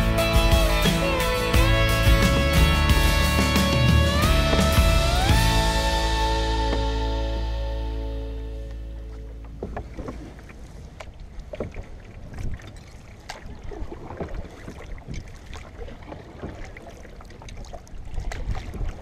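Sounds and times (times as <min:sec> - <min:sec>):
paddle splashing in water: 0:00.5 - 0:19.0
wind rumble on microphone: 0:09.7 - 0:16.7, 0:17.4 - 0:19.0.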